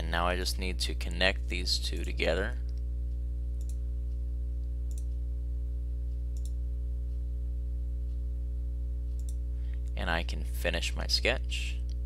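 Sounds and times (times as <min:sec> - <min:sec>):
steady low hum: 0:00.0 - 0:12.0
computer mouse clicks: 0:03.6 - 0:03.8, 0:04.9 - 0:05.2, 0:06.3 - 0:06.6, 0:09.2 - 0:09.4.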